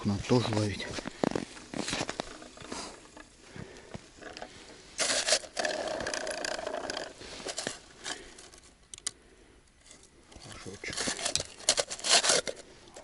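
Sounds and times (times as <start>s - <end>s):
small plastic clicks: 8.9s - 9.2s.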